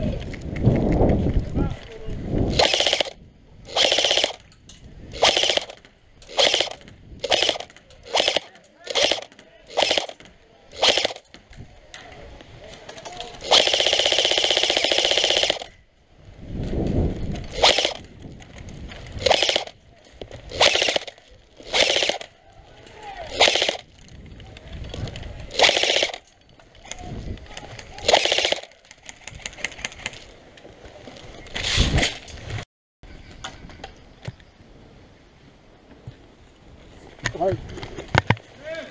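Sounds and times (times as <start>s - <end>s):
airsoft gun firing bursts: 2.5s - 4.4s, 5.1s - 11.2s, 13.4s - 15.7s, 17.5s - 18.0s, 19.2s - 19.8s, 20.5s - 22.3s, 23.3s - 23.9s, 25.5s - 26.2s, 28.0s - 28.8s.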